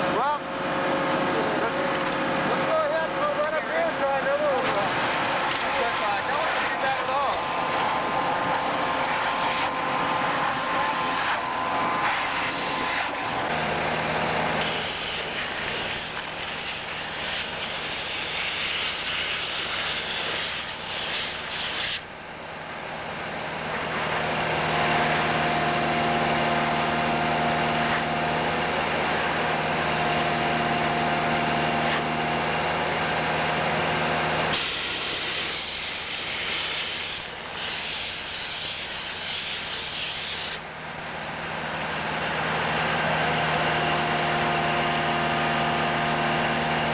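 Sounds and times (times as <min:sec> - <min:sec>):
vacuum excavator running: 0:00.0 - 0:19.6, 0:22.0 - 0:46.9
steady whine: 0:00.0 - 0:20.4, 0:21.2 - 0:46.9
rush of air through hose: 0:10.6 - 0:13.3, 0:34.5 - 0:40.6.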